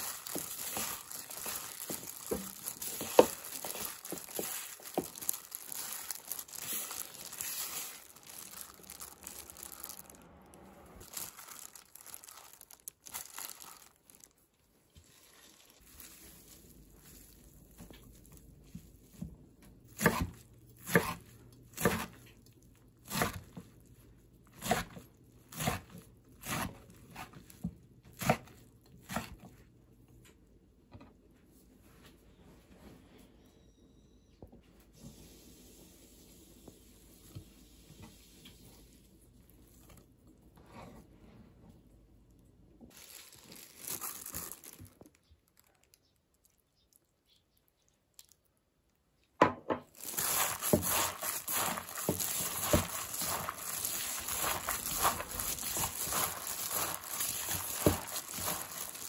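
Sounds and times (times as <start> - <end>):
plastic glove crinkling: 0.0 - 29.5, 42.2 - 49.0, 49.8 - 59.0.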